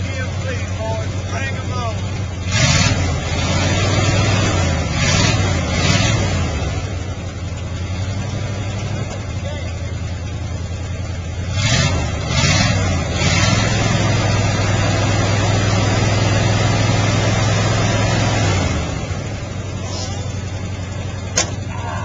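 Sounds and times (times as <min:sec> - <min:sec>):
truck engine revving and idling: 0:00.0 - 0:22.0
truck door slamming: 0:21.3 - 0:21.7.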